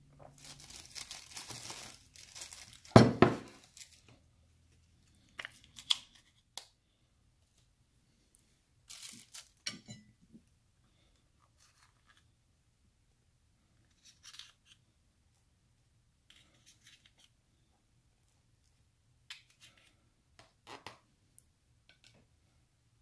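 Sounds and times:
plastic packaging crinkling: 0.2s - 4.1s, 8.8s - 9.6s.

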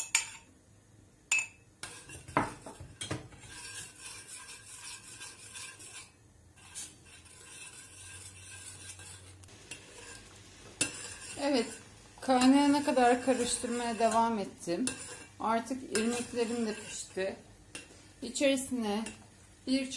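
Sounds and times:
spoon clinking against metal: 0.0s - 0.5s, 1.3s - 1.6s
metal spoon scraping a pot: 1.8s - 17.9s.

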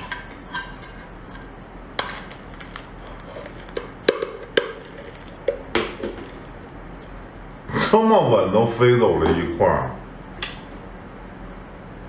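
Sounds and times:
lobster shells cracking: 2.0s - 6.5s.

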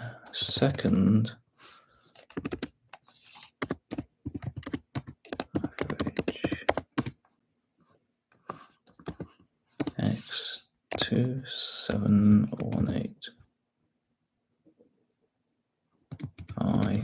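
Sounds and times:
typing on computer keyboard: 0.3s - 1.1s, 2.1s - 7.2s, 8.8s - 10.0s, 16.1s - 17.0s.

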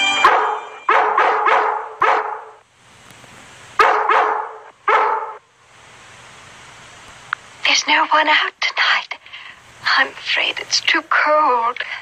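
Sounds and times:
held musical chord: 0.0s - 0.9s
cartoon dog barking: 0.2s - 2.6s, 3.8s - 5.4s.

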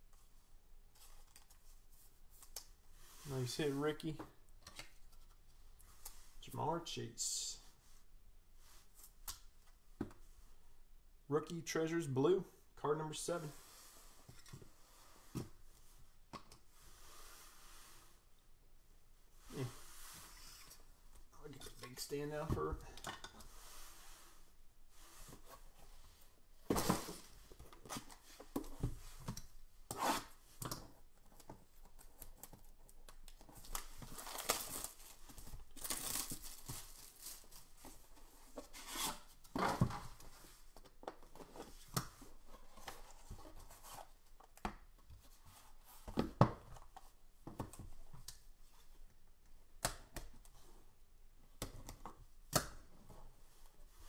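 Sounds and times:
packaging crinkling: 33.7s - 37.6s.

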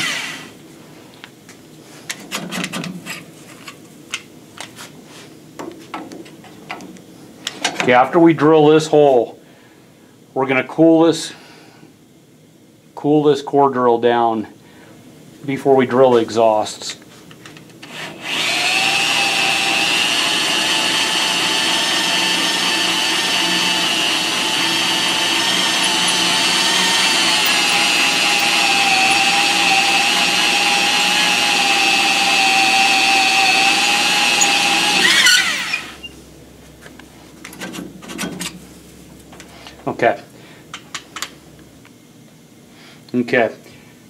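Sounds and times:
electric drill cutting metal: 0.0s - 0.5s, 17.9s - 36.1s.

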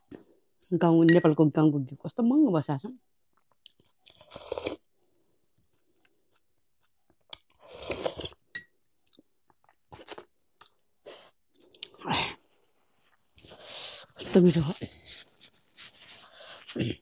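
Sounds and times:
person crunching and chewing: 3.6s - 4.9s, 7.3s - 8.5s, 9.1s - 10.8s.

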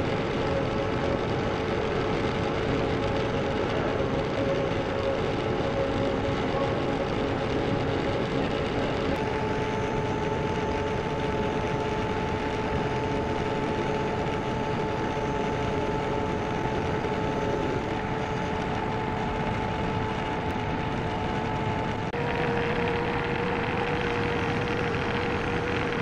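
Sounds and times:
lathe cutter whirring: 7.1s - 26.0s.

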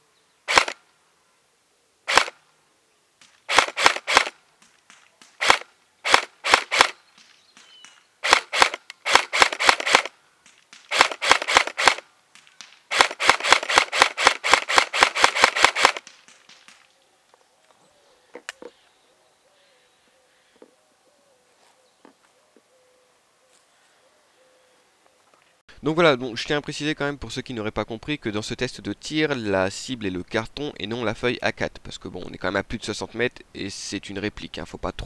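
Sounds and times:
airsoft rifle firing clicks: 0.5s - 0.8s, 2.1s - 2.4s, 3.2s - 17.0s
pellets hitting cardboard target: 3.2s - 16.9s.

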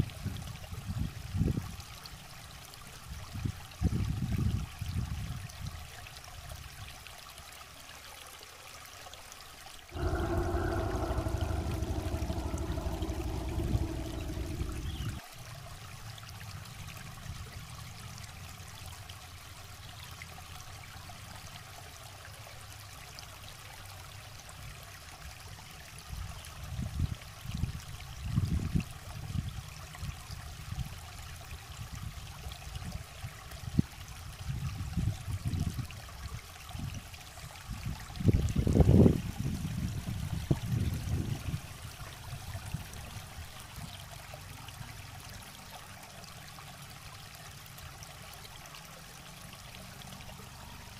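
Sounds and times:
low rumbles: 10.0s - 15.2s
steady pitched hum: 10.0s - 15.2s.

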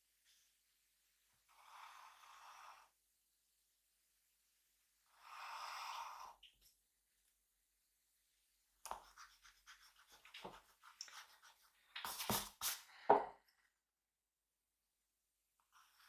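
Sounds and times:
drawing tool scratching paper: 8.9s - 12.8s.

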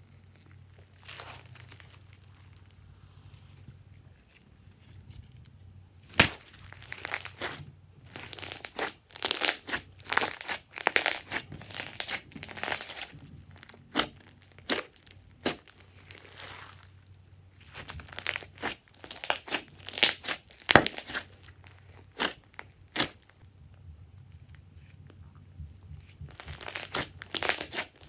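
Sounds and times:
slime squelching: 0.0s - 2.9s, 6.0s - 23.4s, 26.0s - 28.0s.

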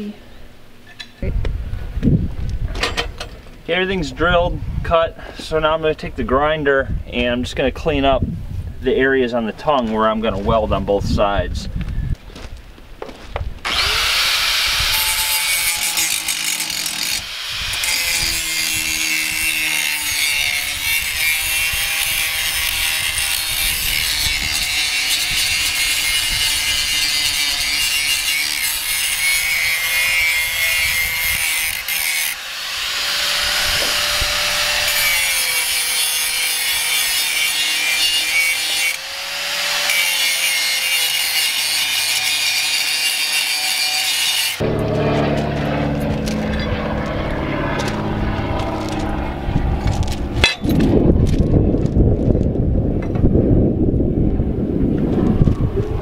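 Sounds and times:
angle grinder grinding steel: 13.7s - 49.1s.

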